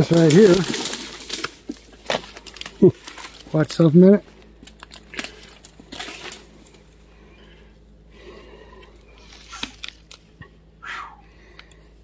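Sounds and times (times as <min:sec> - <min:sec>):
dry branches rustling and snapping: 0:00.0 - 0:07.6, 0:08.8 - 0:10.6.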